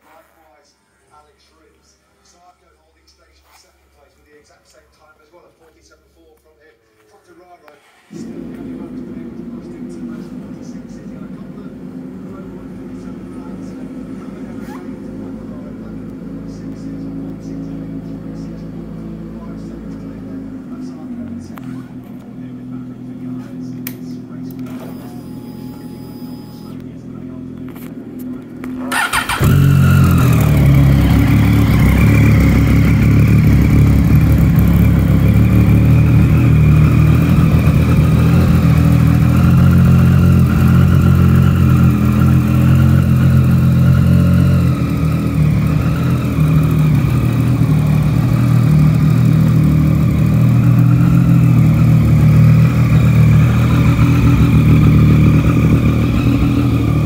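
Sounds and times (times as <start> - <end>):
motorcycle engine idling: 8.1 - 24.5, 27.0 - 57.0
electric starter cranking: 28.9 - 33.2.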